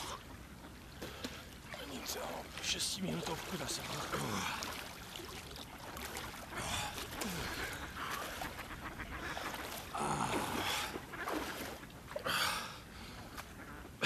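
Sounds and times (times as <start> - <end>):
water splashing from wading: 0.0 - 14.0
ducks quacking: 6.0 - 14.0.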